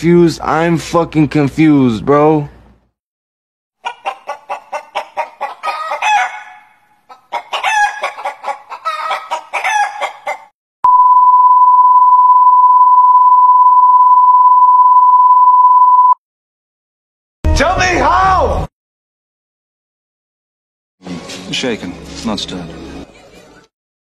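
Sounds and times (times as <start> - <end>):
chicken-like clucking and squawking: 3.8 - 10.5
steady beep tone: 10.8 - 16.2.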